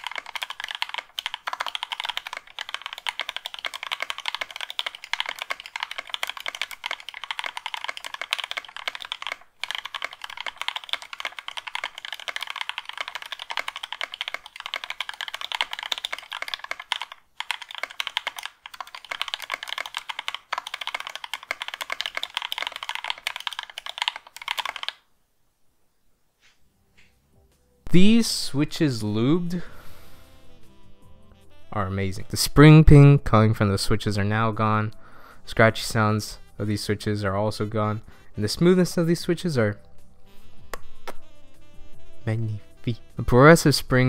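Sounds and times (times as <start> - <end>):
mechanical keyboard typing: 0.0 - 25.0.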